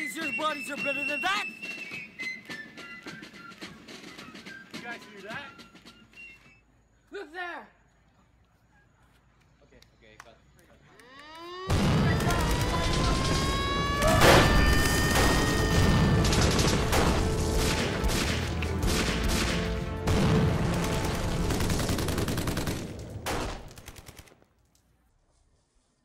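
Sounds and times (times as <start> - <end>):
rising whistling tones: 0.0 - 6.8, 11.0 - 11.7
rapid machine-gun fire: 11.7 - 24.4.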